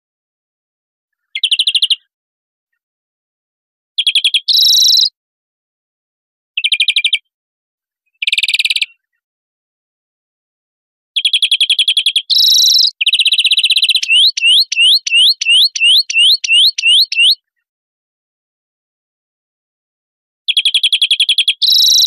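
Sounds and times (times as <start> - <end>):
finch song trills: 12.3 - 17.4.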